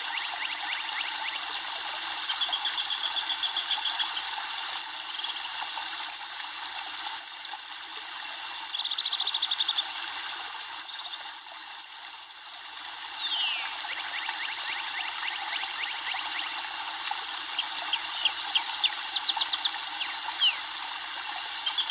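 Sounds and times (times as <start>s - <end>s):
songbirds trilling and chirping: 0.0s - 4.3s, 8.5s - 12.5s, 13.1s - 16.6s, 17.5s - 20.7s, 21.6s - 21.9s.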